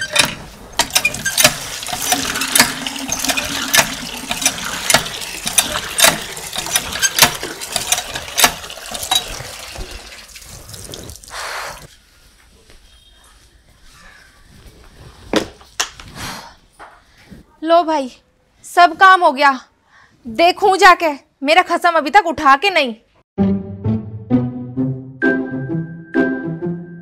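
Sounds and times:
hand pump handle clanking: 0:00.0 - 0:10.0.

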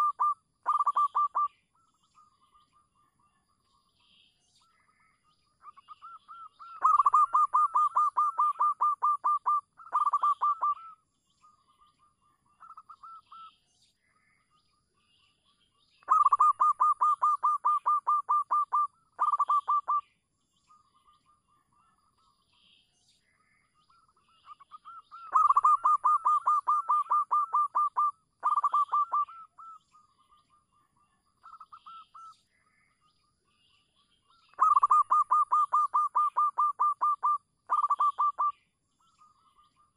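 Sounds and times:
dove cooing: 0:00.0 - 0:01.5, 0:06.8 - 0:10.9, 0:16.1 - 0:20.0, 0:25.2 - 0:29.5, 0:34.6 - 0:38.5.

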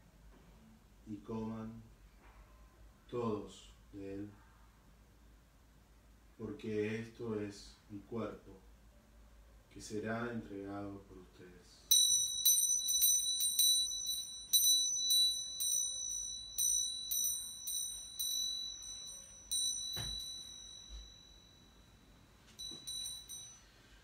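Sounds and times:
small bell jingling: 0:11.9 - 0:24.0
soft thump: 0:19.9 - 0:21.2.

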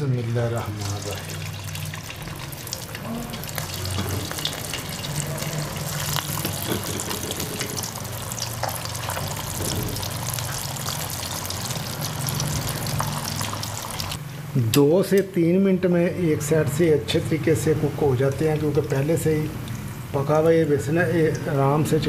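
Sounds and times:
food deep-frying sizzle: 0:00.0 - 0:14.2, 0:17.8 - 0:21.9
crackles in hot fat: 0:01.8 - 0:14.2.

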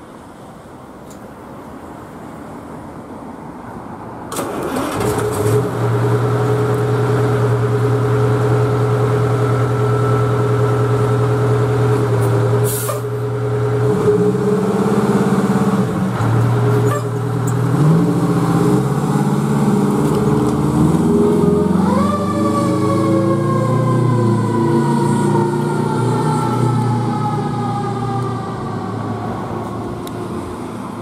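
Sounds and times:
diesel engine idling and revving: 0:04.4 - 0:31.0
air brakes hissing: 0:12.6 - 0:13.2.

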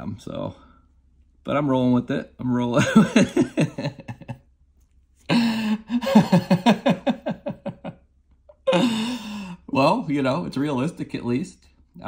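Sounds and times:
man laughing: 0:02.7 - 0:04.4, 0:05.3 - 0:08.0.

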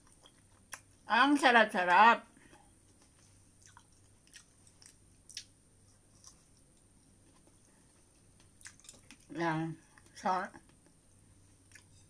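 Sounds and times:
soft mouth clicks chewing: 0:00.0 - 0:01.0, 0:03.0 - 0:07.6, 0:08.4 - 0:09.3, 0:11.6 - 0:12.0.

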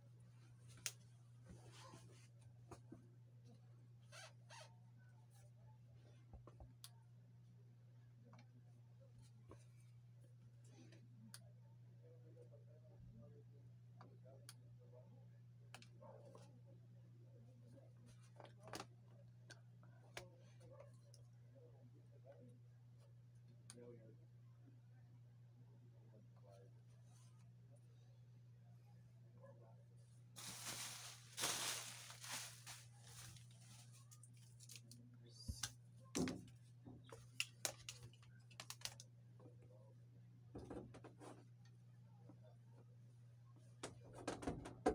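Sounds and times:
scratchy rustle of handling: 0:30.4 - 0:34.6.

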